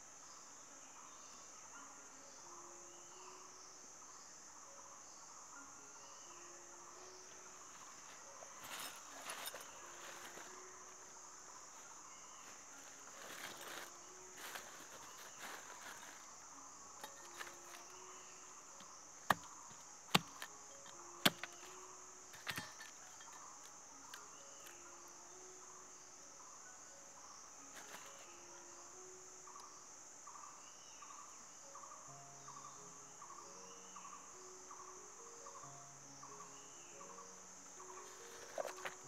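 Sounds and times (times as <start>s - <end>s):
forest insects droning: 0.0s - 39.0s.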